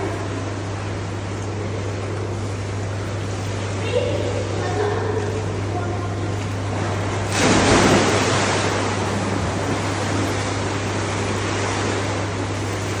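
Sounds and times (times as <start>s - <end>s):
steady low hum: 0.0s - 13.0s
water sloshing: 1.2s - 13.0s
child splashing into pool: 7.3s - 9.0s.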